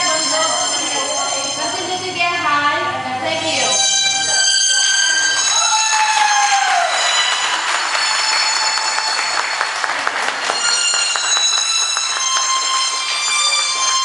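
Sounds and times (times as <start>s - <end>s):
shrill whistle-like tones: 3.7s - 14.0s
sharp claps or clicks: 7.0s - 14.0s.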